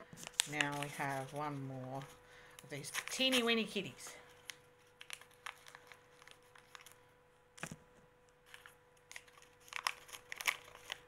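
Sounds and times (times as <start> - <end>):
packet rustling and clicking: 0.1 - 7.0, 7.6 - 11.0
packet crackling: 0.2 - 2.1, 2.8 - 7.0, 8.4 - 11.0.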